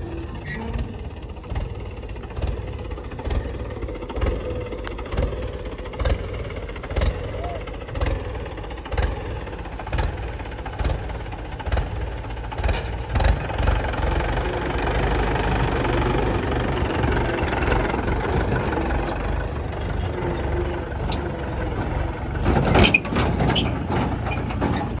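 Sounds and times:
tractor diesel engine running: 0.0s - 25.0s
knocks and clatter: 21.0s - 25.0s.

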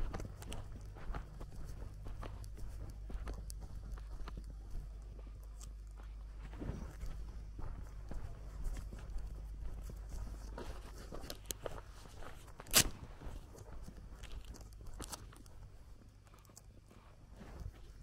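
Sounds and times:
footsteps on dirt path: 0.0s - 18.0s
sharp crack: 12.6s - 13.0s.

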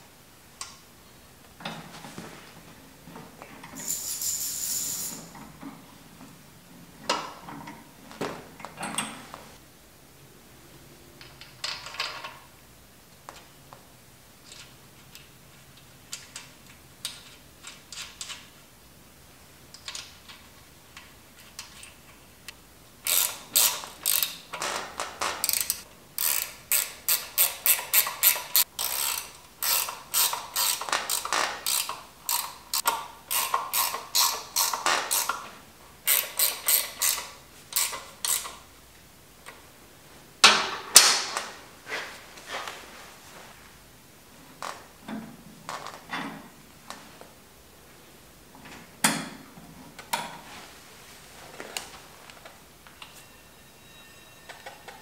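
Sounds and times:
hand ratchet clicking: 23.0s - 24.5s, 25.4s - 35.4s, 36.1s - 38.6s.

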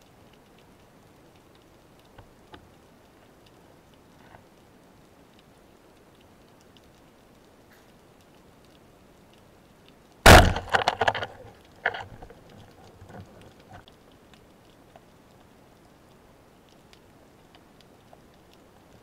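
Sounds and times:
speargun shot crack: 10.3s - 11.4s.

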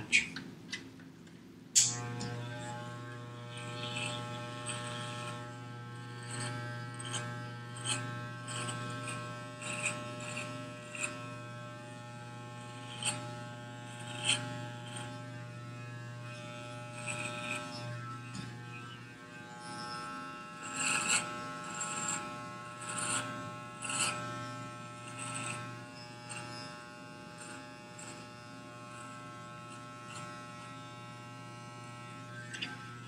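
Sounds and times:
clipper blades crackling in hair: 1.8s - 2.4s
electric hair clippers buzzing: 1.8s - 33.0s.

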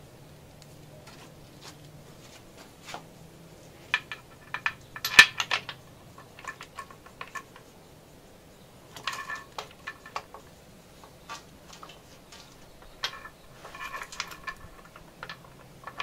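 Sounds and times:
metallic clinks of bolts and tools: 3.9s - 7.7s, 8.9s - 16.0s.

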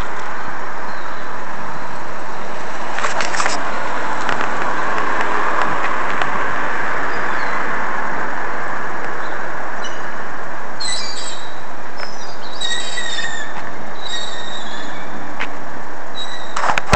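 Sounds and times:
loud rushing noise: 0.0s - 12.0s
high squeals: 10.8s - 15.1s.

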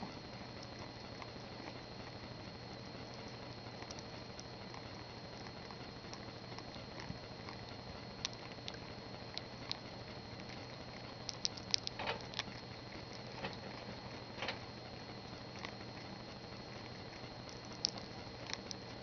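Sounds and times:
faint steady hum: 0.0s - 19.0s
guinea pig chewing: 0.0s - 19.0s.

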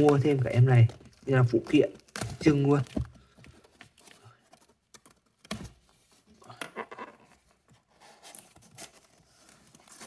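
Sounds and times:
tape and cardboard scratching: 3.4s - 10.0s.

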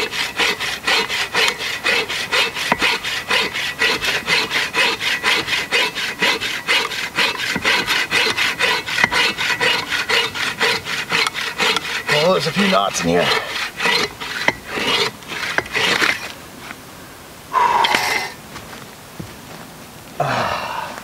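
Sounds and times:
bow saw cutting wood: 0.0s - 16.4s.

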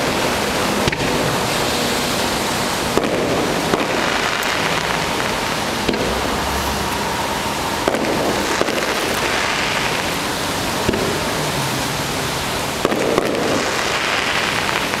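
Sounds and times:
steady hiss: 0.0s - 15.0s
distant firework bangs: 2.8s - 11.4s, 12.8s - 15.0s.

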